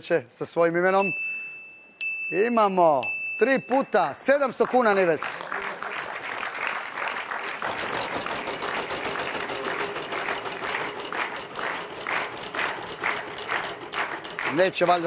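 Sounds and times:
prize wheel flapper clicking: 7.8 - 15.0.

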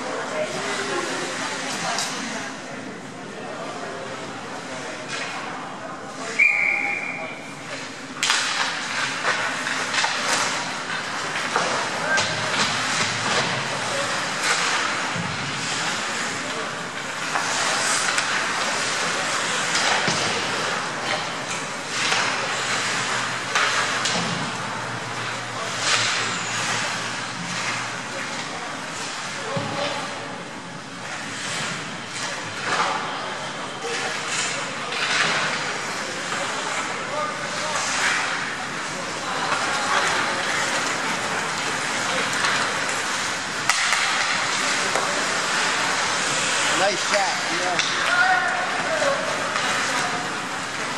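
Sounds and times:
echoing rink background: 0.0 - 50.9
skate blades scraping on ice: 8.4 - 24.0, 31.0 - 50.9.

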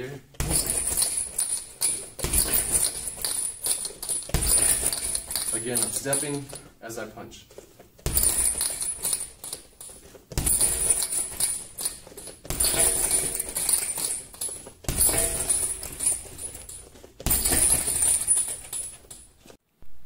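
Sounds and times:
punches thudding into heavy bag: 0.4 - 1.5, 2.1 - 3.5, 4.1 - 5.6, 8.0 - 9.3, 10.3 - 14.2, 14.8 - 16.6, 17.2 - 18.5
chains jingling: 0.4 - 6.6, 8.1 - 19.5.

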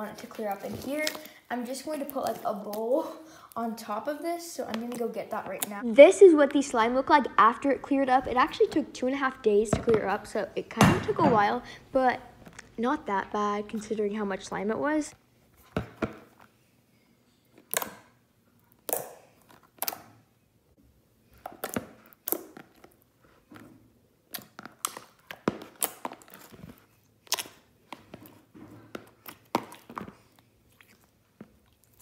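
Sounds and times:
slime squelching and clicking: 0.3 - 2.9, 4.5 - 5.8, 17.6 - 20.2, 21.4 - 23.1, 24.2 - 28.4.

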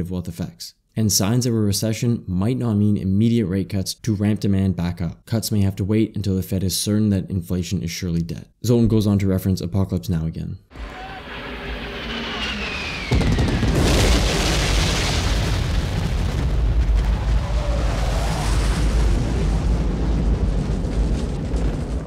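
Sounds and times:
falling whine: 10.7 - 19.8
heavy explosion with deep rumble: 12.5 - 22.0.

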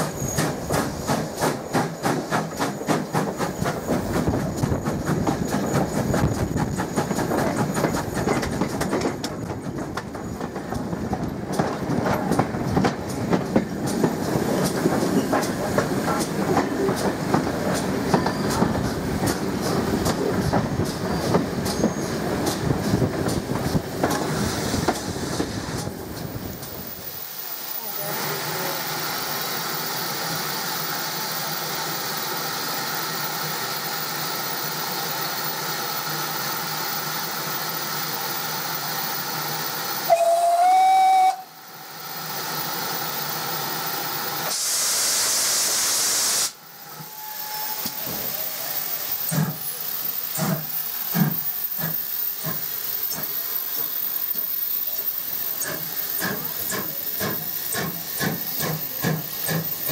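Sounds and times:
steam hissing: 0.0 - 10.6, 11.3 - 59.9
locomotive whistle: 40.0 - 41.6, 44.6 - 48.8
loud steam blast: 44.4 - 49.7.

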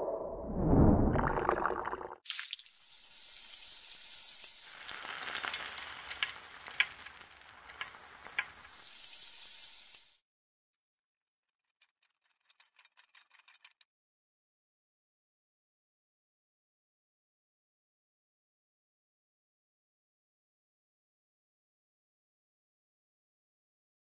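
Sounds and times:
food sizzling in hot pan: 2.3 - 10.2.

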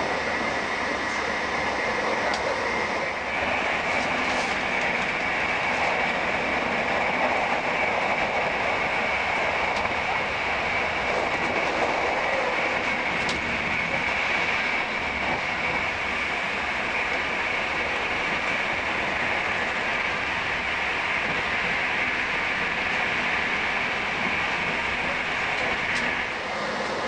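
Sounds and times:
train wheel and track noise: 0.0 - 27.0.

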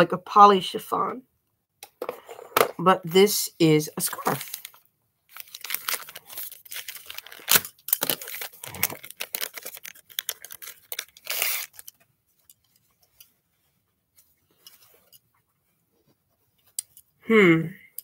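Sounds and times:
packaging torn and crinkled: 4.0 - 12.0.

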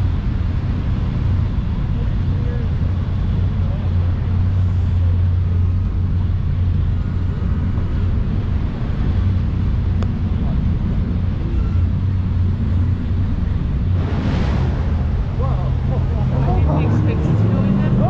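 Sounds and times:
boat engines humming: 0.0 - 18.0
brief rush of noise: 14.0 - 16.0.

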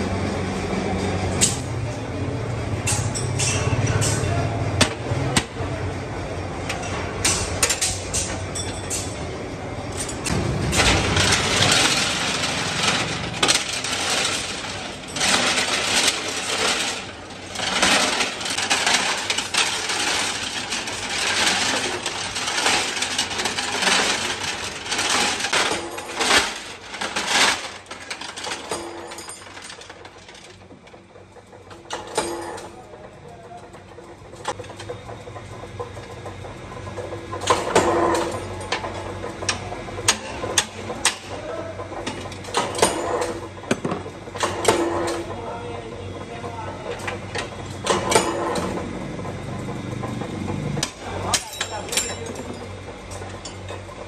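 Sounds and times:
metal parts tumbling in drum: 10.0 - 30.6.

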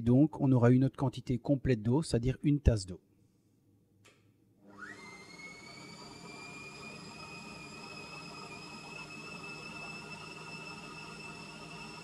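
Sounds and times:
food processor motor whining: 4.6 - 12.0.

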